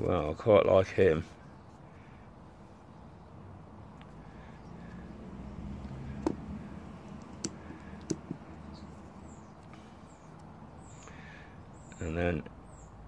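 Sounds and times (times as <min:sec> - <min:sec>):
coin holders clicking on felt: 0:06.2 - 0:08.7.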